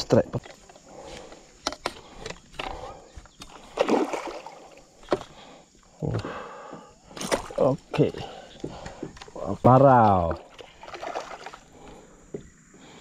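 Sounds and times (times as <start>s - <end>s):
fish thrashing and splashing: 3.4s - 5.4s, 7.1s - 7.7s, 10.3s - 11.8s.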